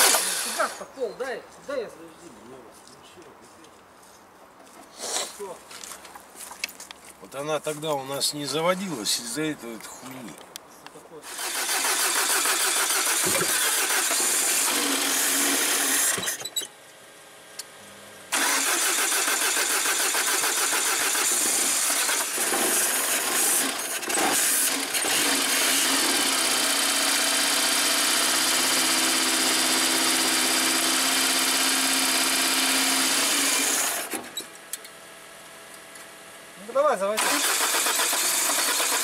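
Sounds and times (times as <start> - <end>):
car engine cranking on starter: 0.0 - 0.8, 11.3 - 16.5, 18.3 - 26.0, 37.2 - 39.0.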